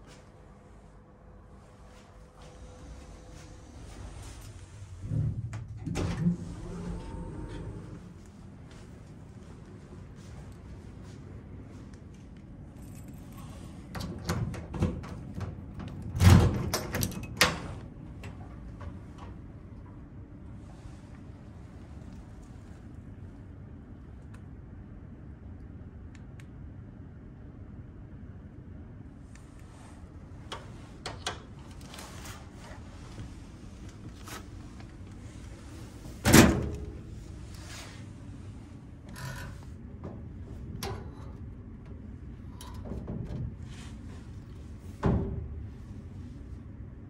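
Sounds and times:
locker door clicks and knocks: 0:14.0 - 0:18.9
locker door banging shut: 0:36.2 - 0:37.1.

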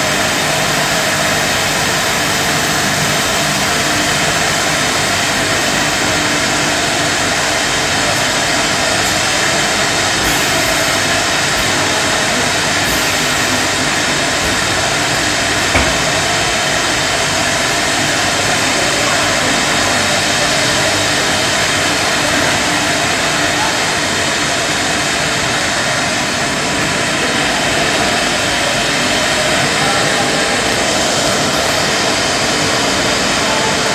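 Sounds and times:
production line machinery running: 0:00.0 - 0:33.9
short knock: 0:15.7 - 0:16.6.

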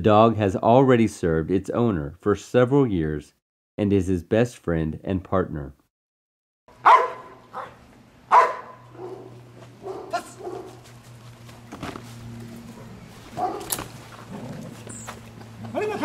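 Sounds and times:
dog barking sharply: 0:06.8 - 0:10.8, 0:13.3 - 0:13.9.

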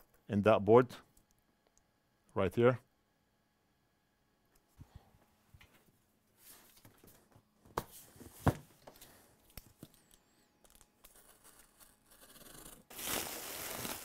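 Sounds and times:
packaging rustling and tearing: 0:12.9 - 0:14.0.

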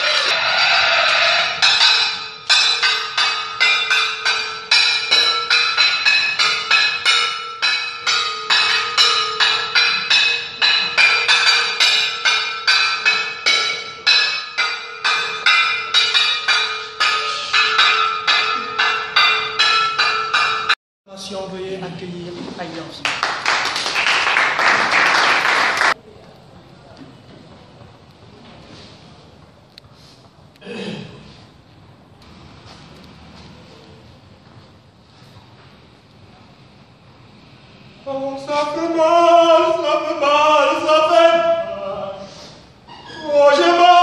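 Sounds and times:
steady held tone: 0:00.0 - 0:20.8
ringing struck notes: 0:01.2 - 0:20.8.

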